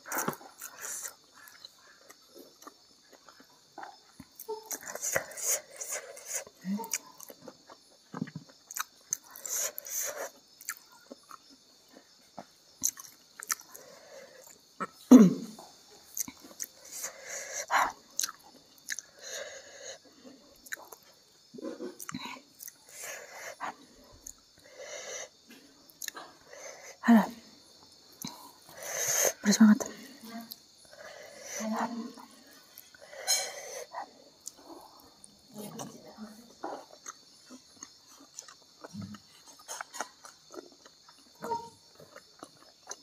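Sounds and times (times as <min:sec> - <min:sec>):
wet chewing and mouth smacks: 0:00.0 - 0:15.0, 0:16.1 - 0:26.9, 0:36.5 - 0:43.0.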